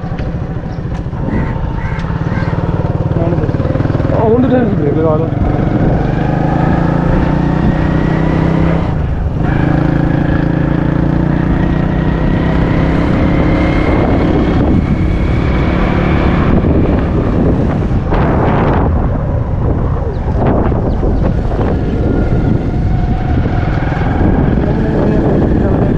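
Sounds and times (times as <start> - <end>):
vehicle engine running: 0.0 - 25.9
wind buffeting microphone: 0.0 - 25.9.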